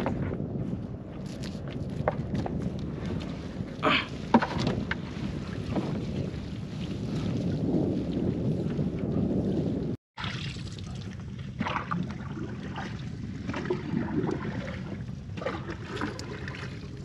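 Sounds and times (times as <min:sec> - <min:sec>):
water around boat: 0:00.0 - 0:17.0
wind: 0:00.0 - 0:17.0
water trickle: 0:10.2 - 0:17.0.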